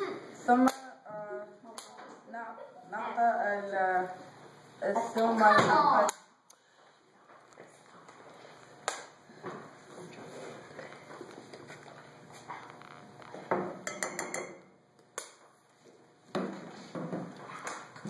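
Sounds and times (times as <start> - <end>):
metal spoon tapping glass jar: 13.9 - 14.6.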